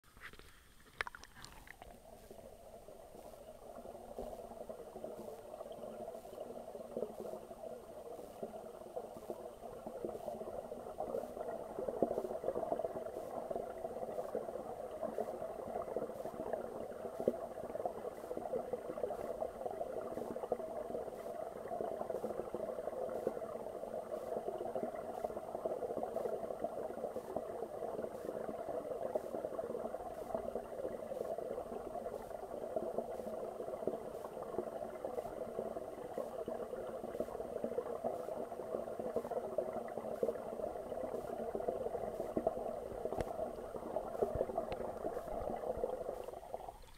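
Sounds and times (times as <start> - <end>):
underwater bubbling and crackling: 0.1 - 46.9.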